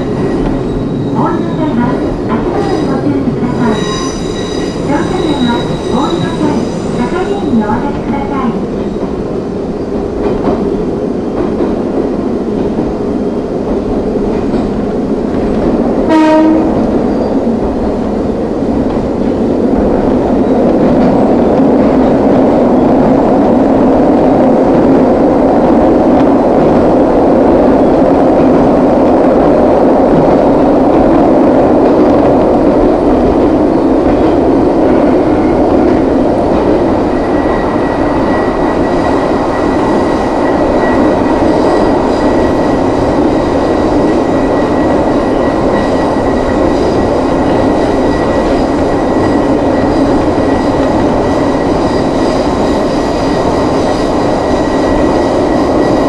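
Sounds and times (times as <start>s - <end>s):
train horn blast: 16.1s - 16.8s.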